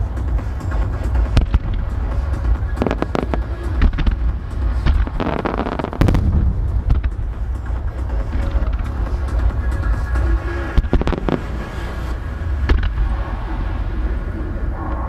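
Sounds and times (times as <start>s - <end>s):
fireworks crackling: 0.0s - 14.0s
fireworks deep rumble: 0.0s - 15.0s
fireworks sharp cracks: 0.8s - 9.9s, 10.6s - 13.1s
fireworks heavy boom: 0.8s - 13.8s.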